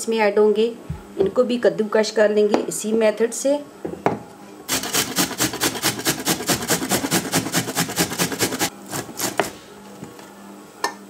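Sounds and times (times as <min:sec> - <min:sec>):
onion grated on metal grater: 0:04.7 - 0:09.6.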